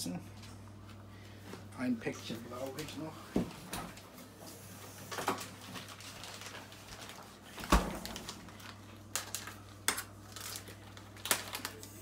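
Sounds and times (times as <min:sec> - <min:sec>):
plastic bag rustling: 0:03.6 - 0:12.0
refrigerator door shutting: 0:07.6 - 0:08.2.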